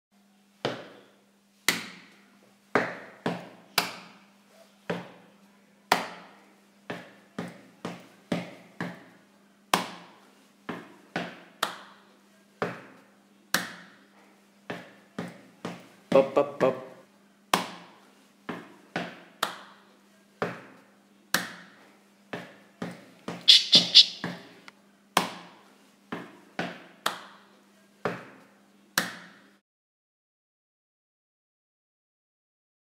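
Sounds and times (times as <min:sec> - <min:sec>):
hand claps: 0:11.6 - 0:11.9, 0:19.4 - 0:19.7, 0:27.0 - 0:27.3.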